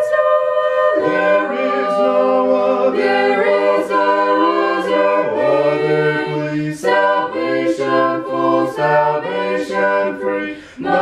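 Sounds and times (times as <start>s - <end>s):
choir singing a hymn a cappella: 0.0s - 11.0s.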